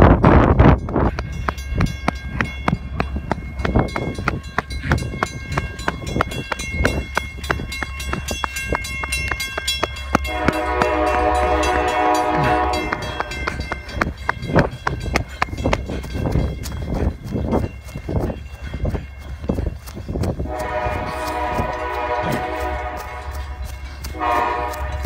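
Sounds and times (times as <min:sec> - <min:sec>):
diesel locomotive rumble: 0:00.0 - 0:25.0
train air horn blast: 0:10.2 - 0:13.4, 0:20.4 - 0:25.0.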